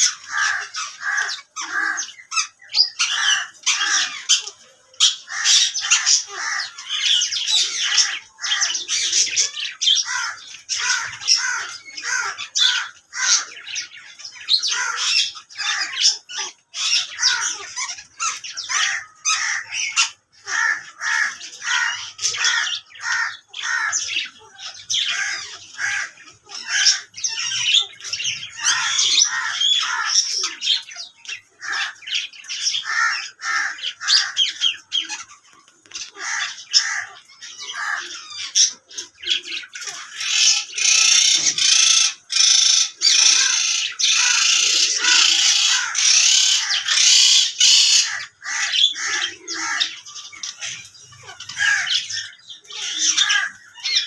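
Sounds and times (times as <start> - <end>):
parakeets squawking and chirping: 0.0 - 54.0.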